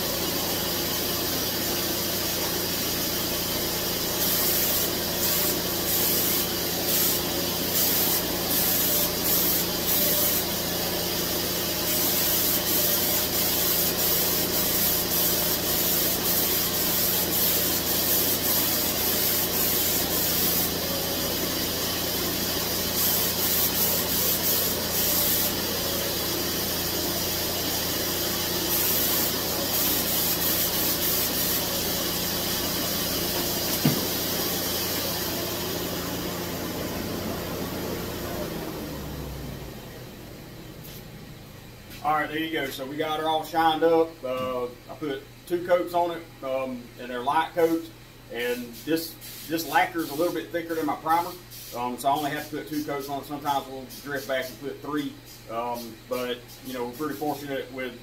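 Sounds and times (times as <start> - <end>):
spray gun hissing: 0.0 - 36.6, 48.6 - 54.6.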